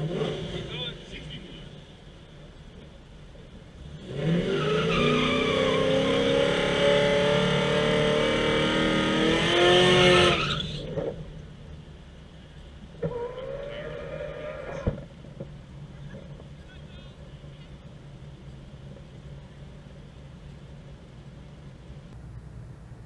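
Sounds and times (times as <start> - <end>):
car engine revving: 0.0 - 1.6, 3.8 - 11.3.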